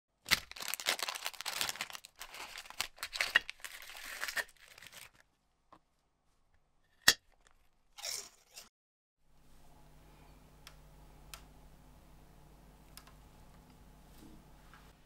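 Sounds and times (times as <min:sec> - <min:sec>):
plastic wrapper crinkling and tearing: 0:00.2 - 0:05.2.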